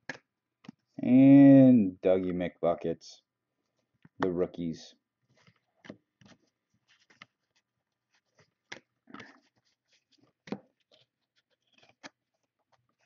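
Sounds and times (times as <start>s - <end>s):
cardboard cards flipping and sliding: 5.2s - 13.0s.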